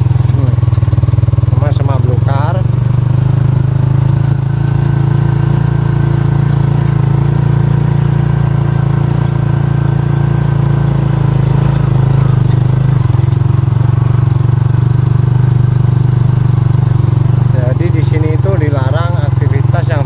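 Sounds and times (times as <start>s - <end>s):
small motorcycle engine running: 0.0s - 20.0s.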